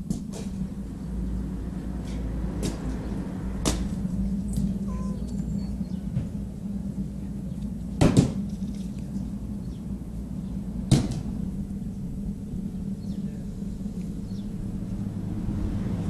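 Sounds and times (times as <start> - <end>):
steady low hum: 0.0 - 16.0
sharp knocks: 8.0 - 8.4.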